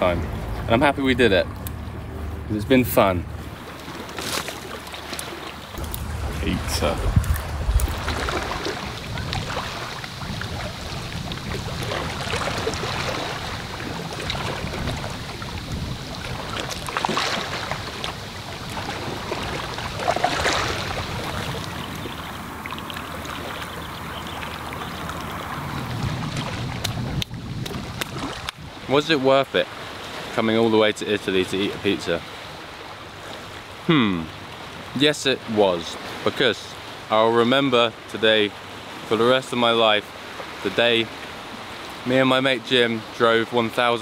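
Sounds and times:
waves lapping against rocks: 3.4s - 33.8s.

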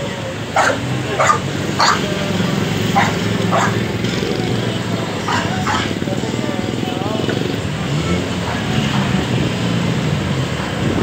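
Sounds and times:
dog barking: 0.6s - 2.1s, 2.9s - 3.8s, 5.2s - 6.0s
motorcycle engine running: 0.6s - 9.6s.

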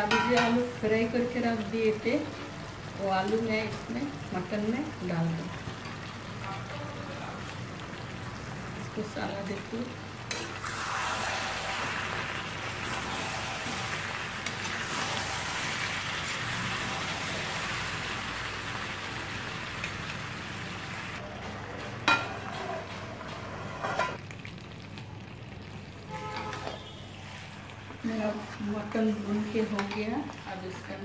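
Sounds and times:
curry sizzling in a pan: 0.0s - 31.0s
metal spatula stirring: 10.3s - 10.6s.

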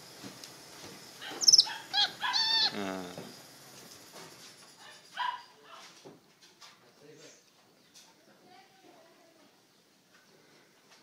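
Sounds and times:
high-pitched animal calls: 1.2s - 3.3s.

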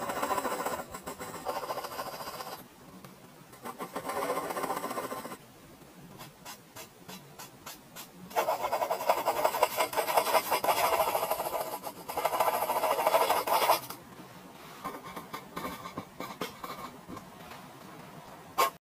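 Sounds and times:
pencil scratching on paper: 0.0s - 2.6s, 3.6s - 5.4s, 6.2s - 14.0s, 18.6s - 18.8s.

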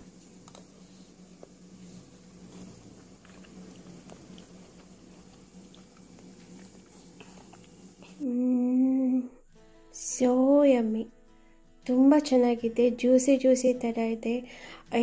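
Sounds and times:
low steady hum: 0.0s - 10.6s
person chewing: 2.3s - 8.2s
person humming mmm: 7.2s - 9.5s.

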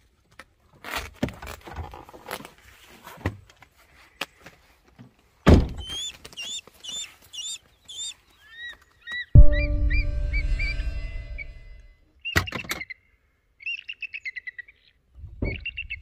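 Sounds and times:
bird chirping: 5.8s - 13.0s, 13.6s - 16.0s.

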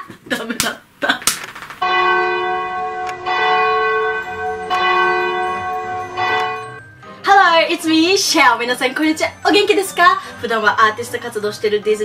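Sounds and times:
large bell tolling: 1.8s - 7.2s.

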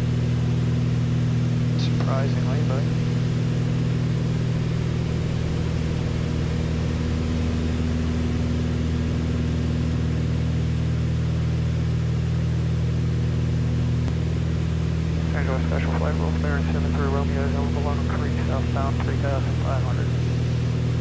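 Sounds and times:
aircraft cabin engine drone: 0.0s - 21.0s.

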